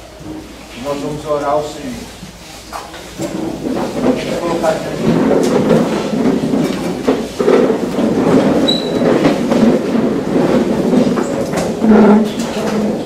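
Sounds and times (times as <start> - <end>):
chairs scraping across hard floor: 0.2 - 13.0
high squeak: 8.6 - 9.0.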